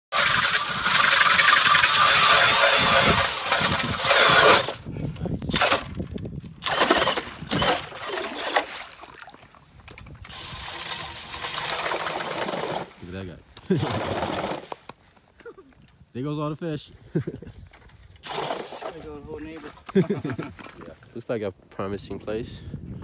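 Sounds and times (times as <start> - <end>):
ice auger drilling through ice: 0.1 - 4.9, 5.5 - 9.1, 10.0 - 14.9, 18.2 - 19.3.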